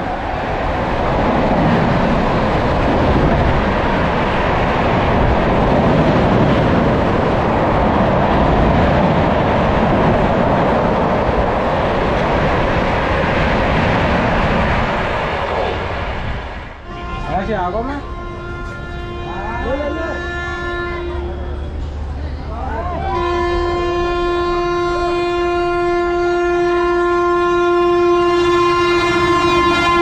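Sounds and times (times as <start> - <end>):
train coaches rushing past: 0.0 - 26.2.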